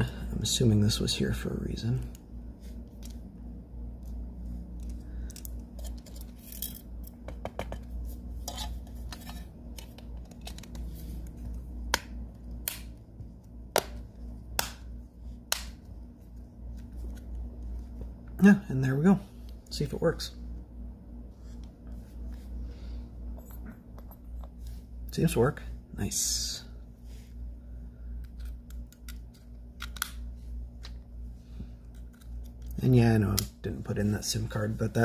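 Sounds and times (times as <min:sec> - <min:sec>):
steady low hum: 0:00.0 - 0:35.0
small parts and tools clicking: 0:04.7 - 0:07.8.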